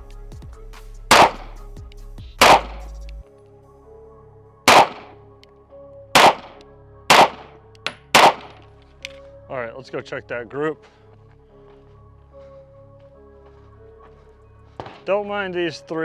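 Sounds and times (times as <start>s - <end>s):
pistol shots: 1.1s - 1.6s, 2.4s - 3.0s, 4.7s - 5.2s, 6.2s - 8.7s.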